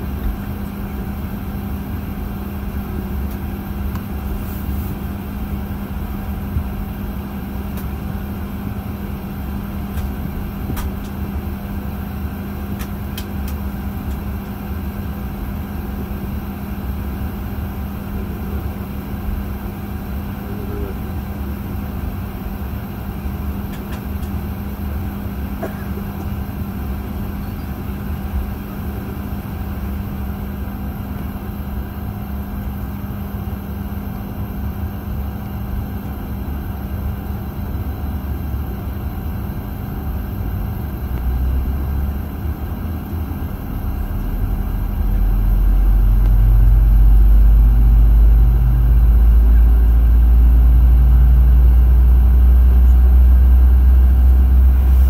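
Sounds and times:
aircraft cabin drone: 0.0 - 55.0
low hum: 35.6 - 55.0
deep rumble: 39.6 - 55.0.

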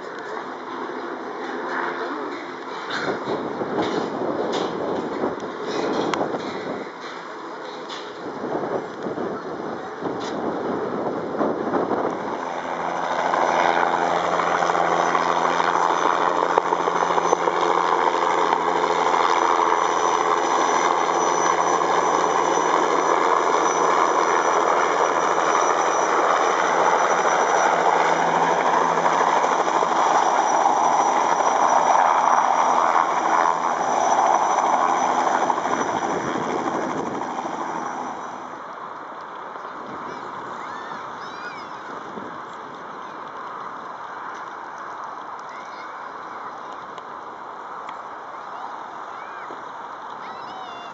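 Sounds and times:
helicopter flying close by: 0.1 - 8.4, 9.0 - 38.8.

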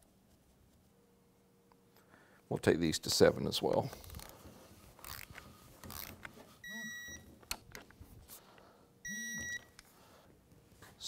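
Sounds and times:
torque wrench high beep: 9.1 - 9.7.

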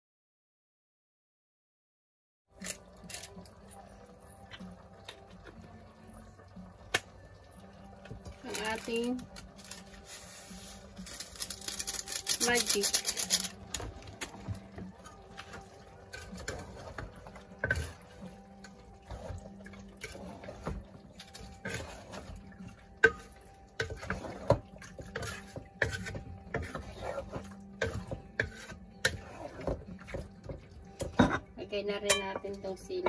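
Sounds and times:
stew sloshing: 8.2 - 31.4
spoon scraping a pot: 8.6 - 22.4, 23.0 - 30.4.

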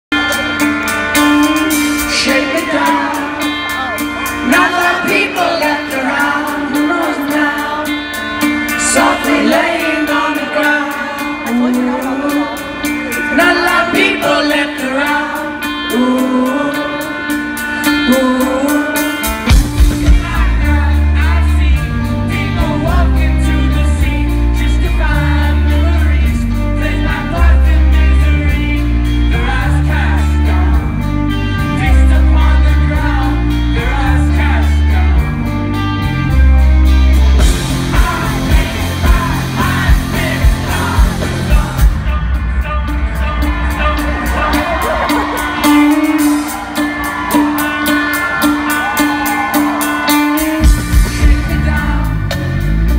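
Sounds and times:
live rock band: 0.0 - 52.9
man singing lead vocals: 0.1 - 52.9
pulsing bass line: 19.5 - 46.5.

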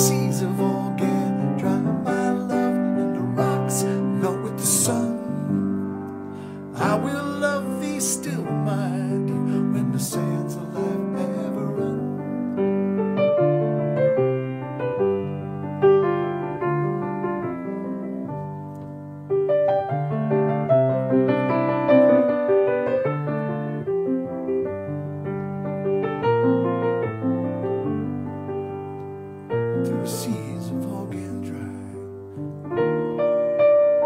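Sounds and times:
solo grand piano: 0.0 - 34.0.

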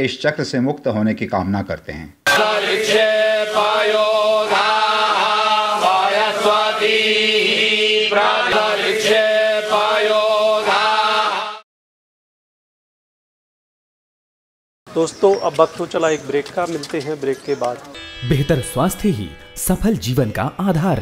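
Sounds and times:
voices chanting mantra: 2.3 - 11.6.

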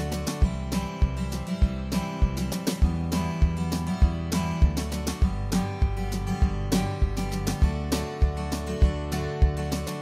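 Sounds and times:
steady beat with low thumps: 0.0 - 10.0
strummed acoustic guitar: 0.0 - 10.0.

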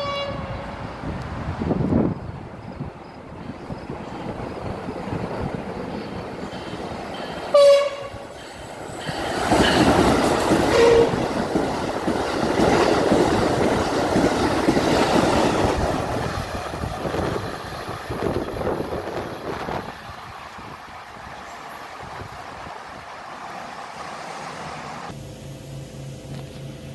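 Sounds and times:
train horn blast: 0.0 - 0.8, 7.5 - 8.3, 10.7 - 11.3
train wheels rumbling on rail: 0.0 - 26.9.

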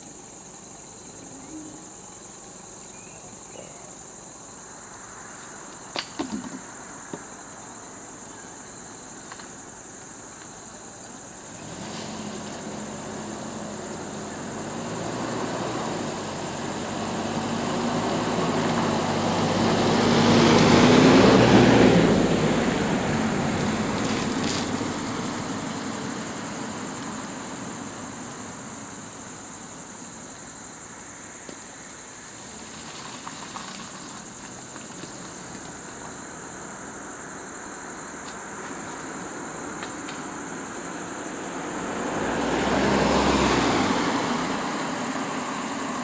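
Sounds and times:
insects droning: 0.0 - 46.0
vehicle engine approaching: 11.2 - 30.8, 38.8 - 46.0.

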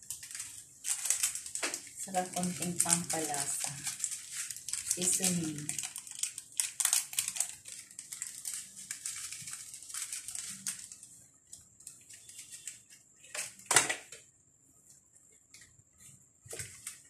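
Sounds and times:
plastic sachet crinkling: 0.0 - 13.7, 16.5 - 17.0.

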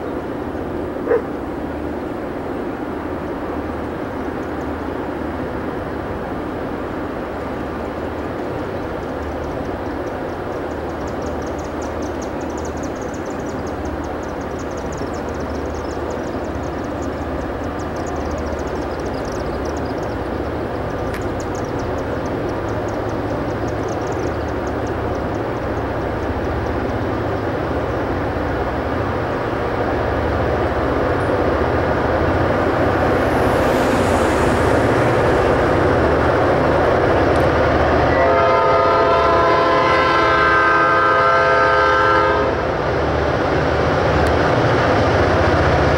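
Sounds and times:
diesel locomotive engine rumble: 0.0 - 45.9
rail noise: 0.0 - 45.9
locomotive air horn: 37.8 - 42.7.

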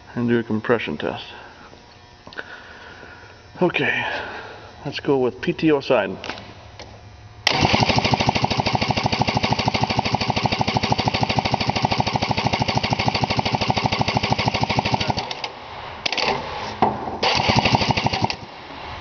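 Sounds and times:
engine cranking over: 7.4 - 16.3, 17.2 - 18.5.

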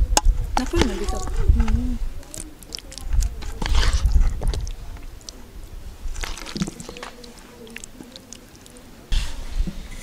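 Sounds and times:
spoon squishing through stew: 2.2 - 9.2.

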